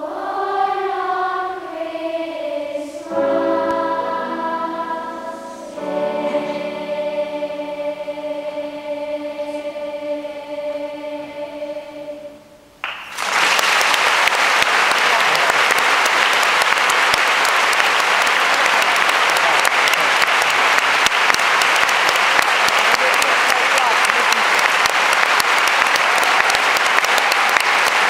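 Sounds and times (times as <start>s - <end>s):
children's choir singing: 0.0s - 12.8s
audience applause: 12.8s - 28.0s.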